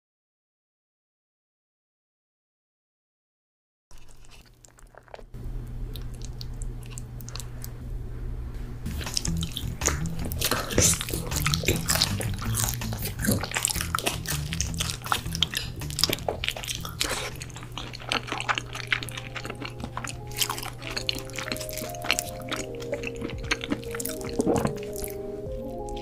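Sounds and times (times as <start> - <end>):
person chewing pizza: 3.9 - 7.9, 8.9 - 26.0
background music with bass: 8.8 - 17.2.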